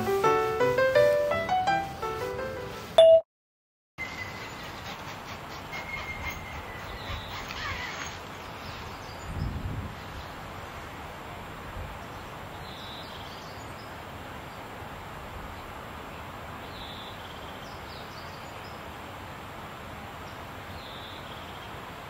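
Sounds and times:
small bird singing: 4.0 - 10.4
outdoor ambient noise: 4.0 - 22.0.

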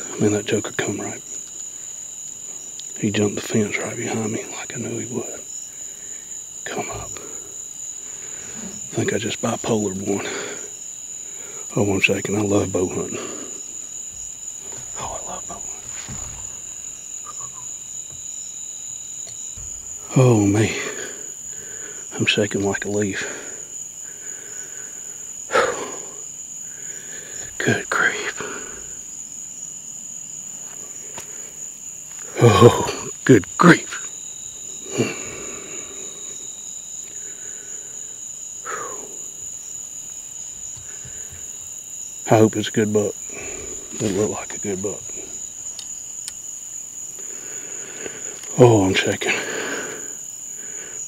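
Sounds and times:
crickets trilling: 0.0 - 51.0
high-pitched insect chorus: 0.0 - 51.0.

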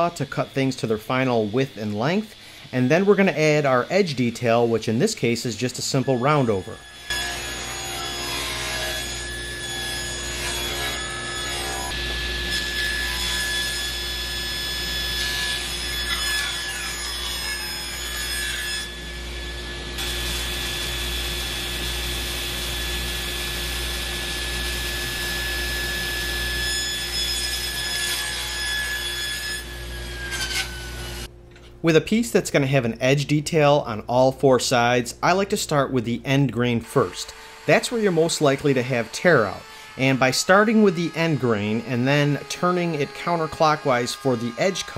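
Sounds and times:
saw blade cutting wood: 0.0 - 19.0, 25.1 - 31.3, 36.8 - 44.9
table saw whine: 0.0 - 31.3, 35.9 - 44.9.

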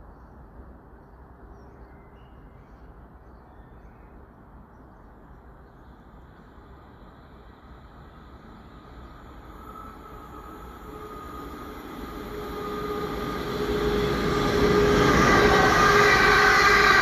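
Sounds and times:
distant train hiss: 4.4 - 17.0
low outdoor rumble: 4.6 - 17.0.

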